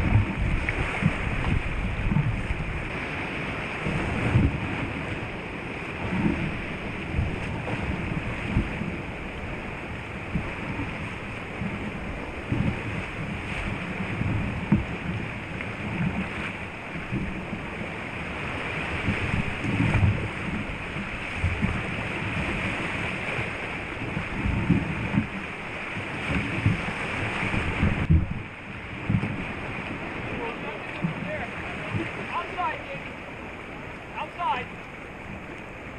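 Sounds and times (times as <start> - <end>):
surf washing and churning: 0.0 - 35.9
low thumps: 27.7 - 29.4.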